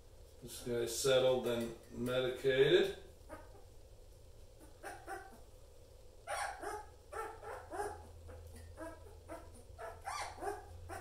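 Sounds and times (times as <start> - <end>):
puppy whimpering: 3.3 - 3.7, 4.6 - 5.4, 6.3 - 11.0.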